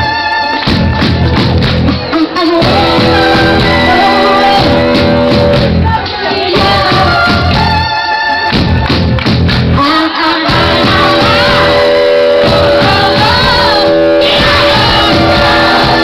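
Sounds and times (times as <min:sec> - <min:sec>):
live rock band playing: 0:00.0 - 0:16.0
woman singing: 0:02.0 - 0:08.5, 0:09.8 - 0:16.0.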